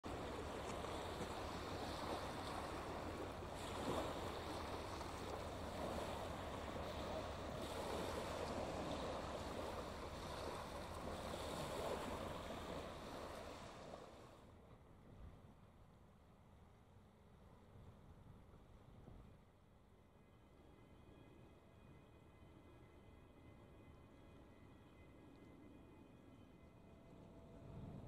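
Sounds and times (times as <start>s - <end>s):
waves washing over pebbles: 0.1s - 14.4s.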